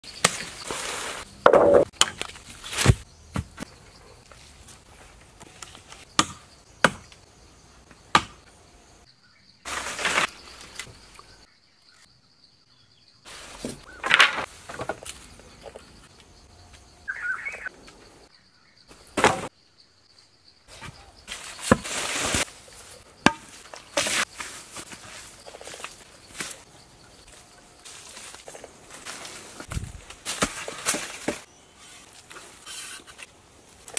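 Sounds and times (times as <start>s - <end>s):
scraping and rustling of sticks: 0.1s - 6.1s, 9.6s - 11.5s, 13.3s - 16.3s, 20.7s - 33.9s
high insect tone: 6.0s - 30.0s.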